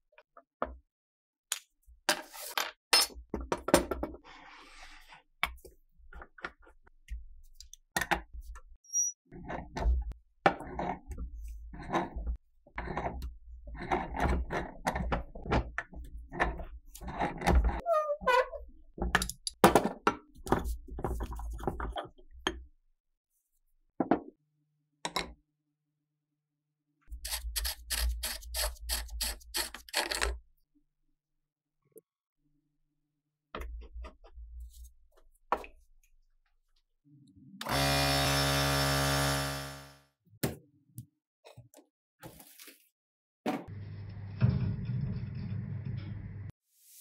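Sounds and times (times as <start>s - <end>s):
electric motor running: 37.7s - 40.0s.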